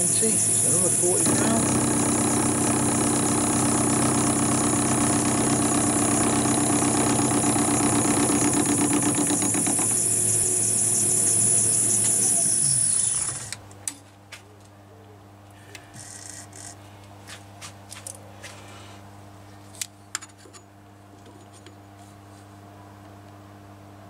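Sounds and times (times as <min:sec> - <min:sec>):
metal lathe whining: 0:00.0 - 0:13.6.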